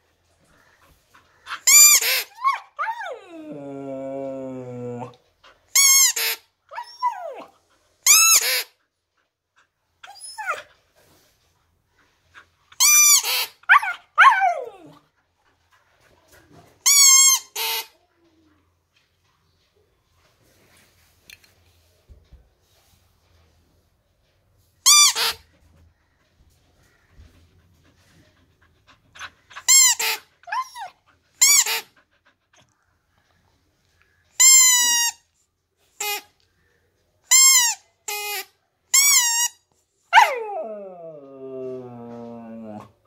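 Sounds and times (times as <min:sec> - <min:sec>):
dog whining: 0:01.5 - 0:05.2, 0:05.8 - 0:08.7, 0:10.0 - 0:10.7, 0:12.8 - 0:15.0, 0:29.2 - 0:32.7, 0:40.1 - 0:43.0
dog howling call sliding down: 0:40.2 - 0:43.0.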